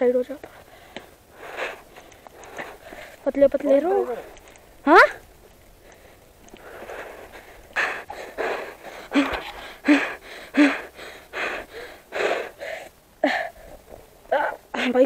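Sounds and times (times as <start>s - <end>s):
person panting hard: 0.6s - 3.2s, 5.8s - 13.8s.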